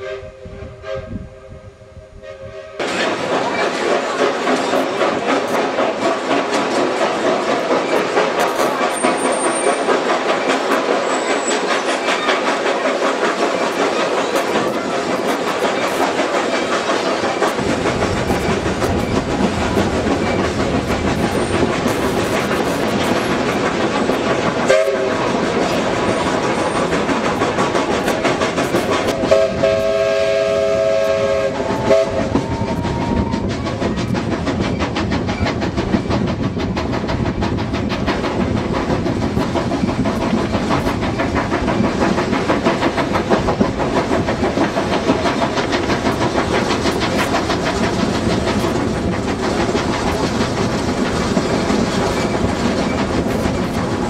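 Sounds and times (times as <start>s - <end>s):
steam locomotive whistle: 0.0s - 2.8s, 24.6s - 25.3s, 28.7s - 33.5s
train wheels clattering on rails: 2.8s - 54.0s.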